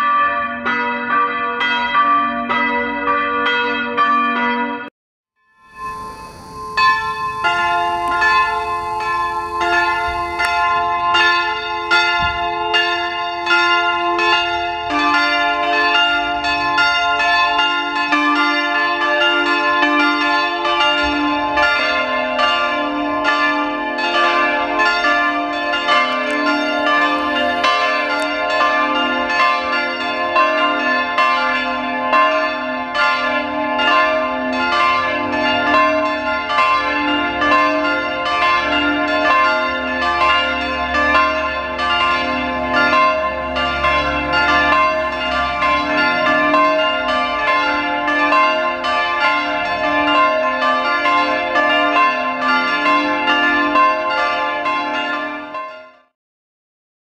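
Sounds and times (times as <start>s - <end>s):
church bells ringing: 0.0s - 4.9s, 5.6s - 56.1s
deep bell ringing: 5.6s - 18.5s, 23.5s - 31.3s, 37.4s - 50.9s.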